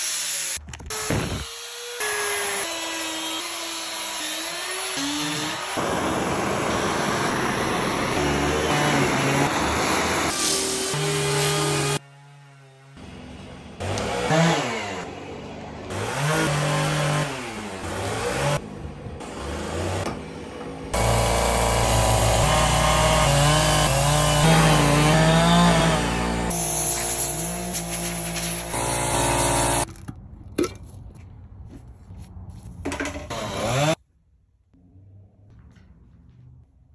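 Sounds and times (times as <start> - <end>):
power tool motors running: 21.0 - 27.8, 28.5 - 29.9.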